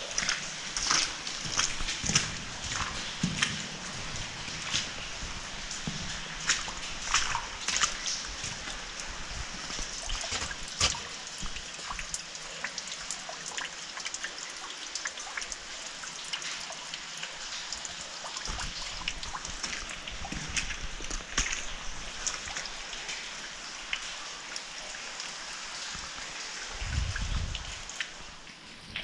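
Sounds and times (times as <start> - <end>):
water dripping in a tunnel: 0.0 - 29.0
sharp water splashes: 6.3 - 9.0, 9.8 - 12.2.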